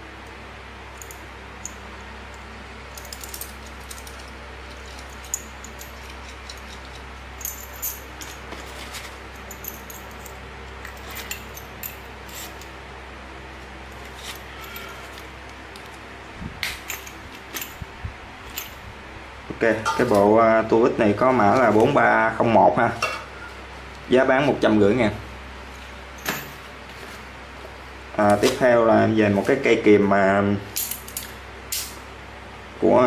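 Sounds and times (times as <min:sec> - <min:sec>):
steady low hum: 0:00.0 - 0:33.0
metal screwdriver bits clinking: 0:03.0 - 0:12.7.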